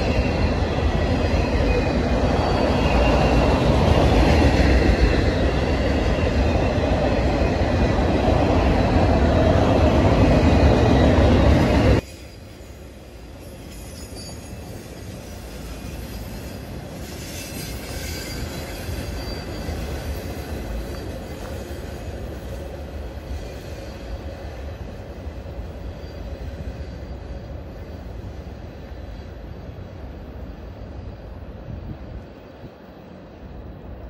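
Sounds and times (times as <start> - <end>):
high wheel squeal: 0.0 - 6.8, 10.4 - 21.8
train wheels rumbling on rail: 0.0 - 34.0.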